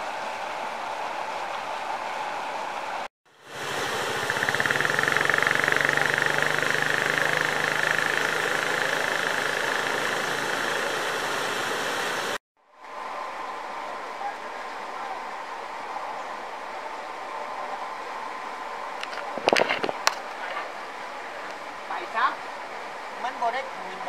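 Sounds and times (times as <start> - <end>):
hiss of moving water: 0.0 - 14.0
water rushing through culvert: 0.0 - 24.0.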